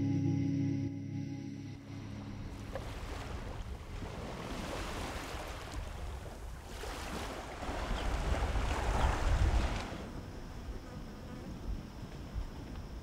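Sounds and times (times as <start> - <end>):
small waves lapping: 1.9 - 10.6
wind on microphone: 2.4 - 10.4.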